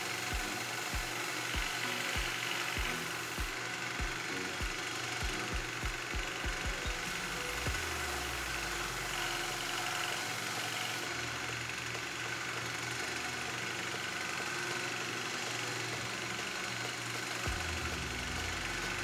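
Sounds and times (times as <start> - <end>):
belt sander running: 0.0 - 19.0.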